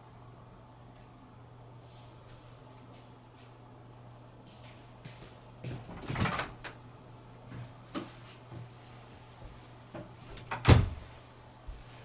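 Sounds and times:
door shutting: 10.3 - 11.0.

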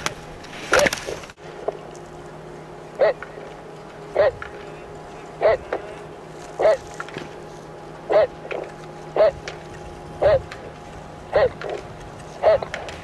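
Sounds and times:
steady low hum: 0.0 - 13.0
person giving sharp calls: 2.9 - 3.5, 4.1 - 6.9, 8.0 - 9.5, 10.2 - 10.6, 11.2 - 12.8.

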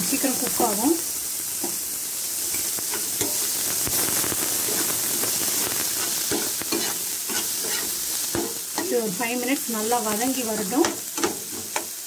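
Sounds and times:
vegetables sizzling in hot oil: 0.0 - 12.0
spatula scraping pan: 5.9 - 9.0.

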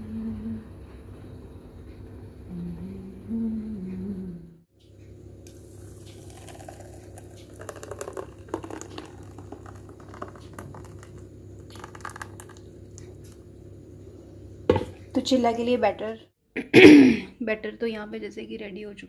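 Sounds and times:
steady low hum: 0.0 - 18.5
ladle scraping bowl: 5.5 - 12.6
ladle stirring wet batter: 5.5 - 13.4.

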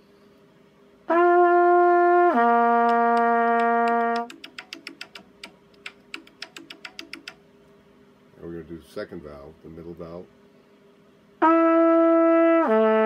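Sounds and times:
faint irregular clicks: 2.8 - 7.4.

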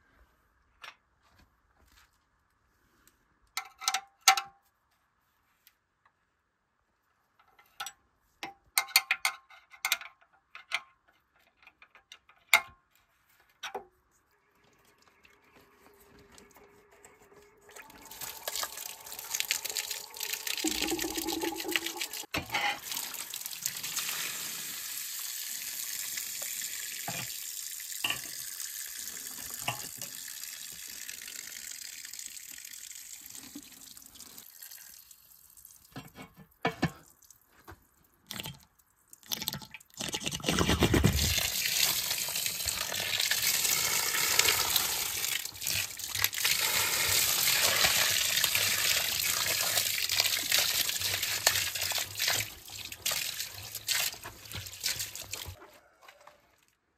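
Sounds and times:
water running and splashing: 17.4 - 35.2, 41.2 - 55.6
water gushing out: 17.6 - 24.6, 40.0 - 55.5.

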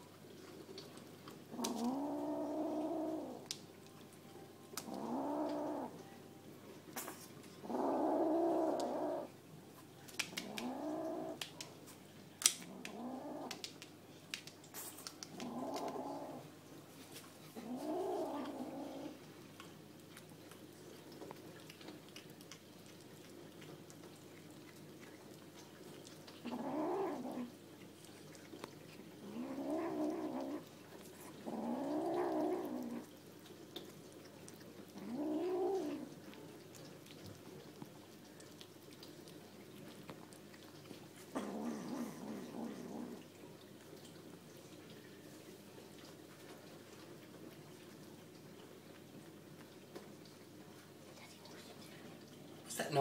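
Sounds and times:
kitten growling: 0.4 - 3.6, 4.7 - 6.1, 7.0 - 9.4, 10.2 - 11.8, 12.4 - 13.9, 14.7 - 16.6, 17.4 - 19.3, 20.6 - 44.0.

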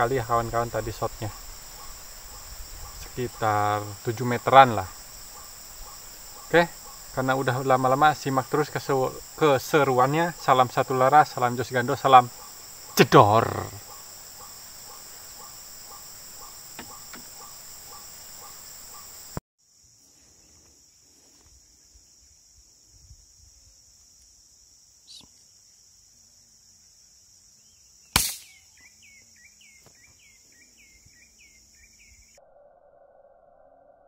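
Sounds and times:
high insect drone: 0.0 - 34.0
short chirping calls: 12.2 - 19.3, 25.0 - 25.4, 27.6 - 32.4
air rifle shot: 28.2 - 28.6.

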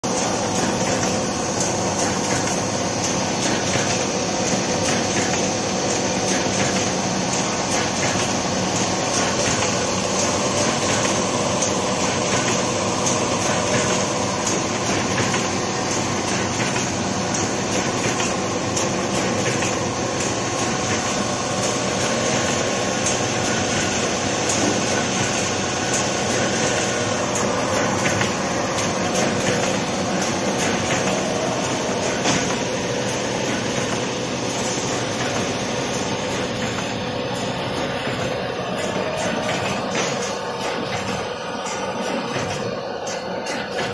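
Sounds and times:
machine whirring: 0.0 - 43.9
steady hum: 0.1 - 43.9.

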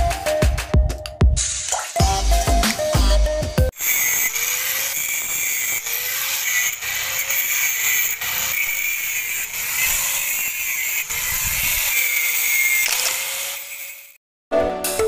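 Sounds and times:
music: 0.0 - 3.7, 14.5 - 15.0
angle grinder cutting steel: 3.7 - 14.2.

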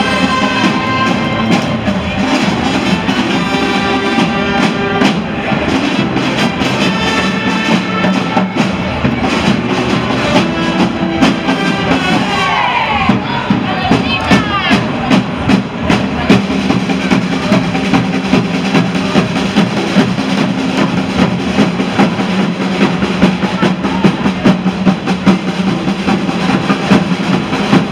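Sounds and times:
marching drums playing: 0.0 - 27.9.

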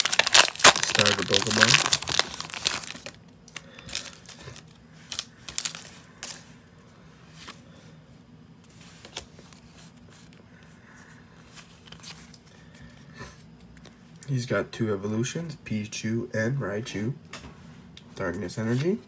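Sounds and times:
foil wrapper crinkling: 0.0 - 6.4
cards rustling and ticking: 0.0 - 6.5.

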